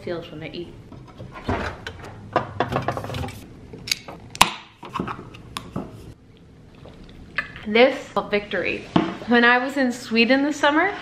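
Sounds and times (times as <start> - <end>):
kitchen door opening: 1.0 - 3.4.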